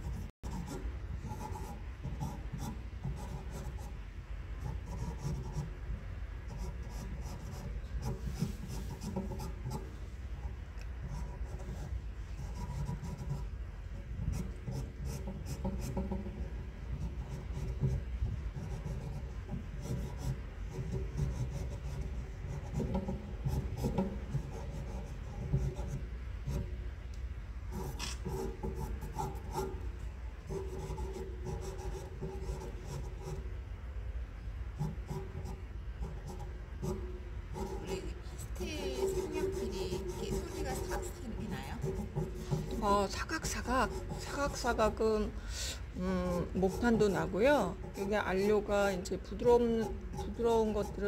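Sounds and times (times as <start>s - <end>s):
pencil scratching on paper: 0.0s - 4.0s, 4.6s - 5.7s, 6.5s - 9.9s, 11.0s - 26.7s, 27.7s - 29.8s, 30.5s - 33.4s, 34.8s - 45.2s, 46.0s - 51.0s.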